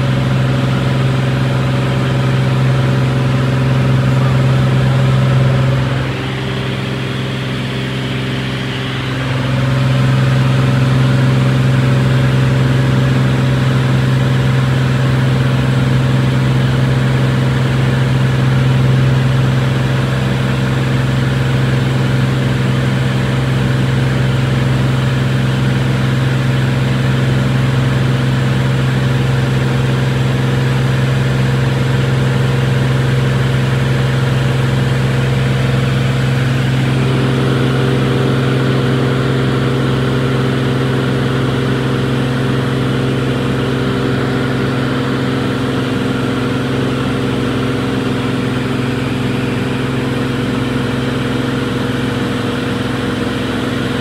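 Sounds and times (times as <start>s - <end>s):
propeller plane engine droning: 0.0s - 54.0s
higher tone: 2.5s - 12.5s, 35.0s - 50.7s.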